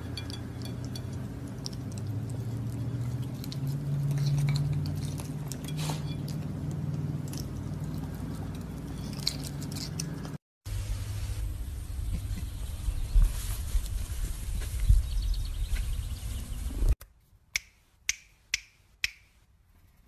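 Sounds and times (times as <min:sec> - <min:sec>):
animal chewing and clinking plate: 0:00.0 - 0:10.4.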